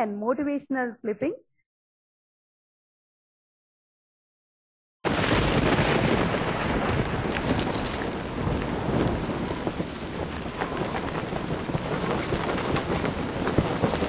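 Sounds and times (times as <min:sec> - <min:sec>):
steady rain falling: 0:05.1 - 0:14.0.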